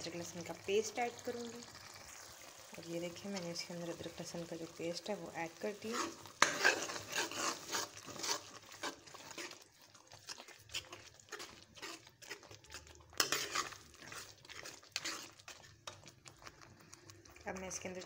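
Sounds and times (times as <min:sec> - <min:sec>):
spoon scraping metal pan: 0:05.6 - 0:16.5.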